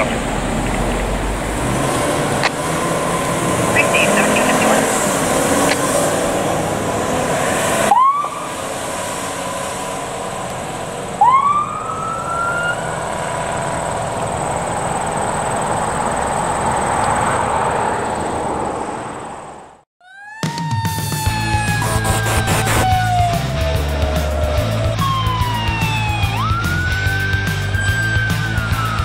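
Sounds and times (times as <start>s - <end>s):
truck engine and road noise: 0.0s - 19.9s, 20.8s - 29.0s
electronic siren whoops: 7.9s - 8.5s, 11.2s - 14.2s, 20.0s - 29.0s.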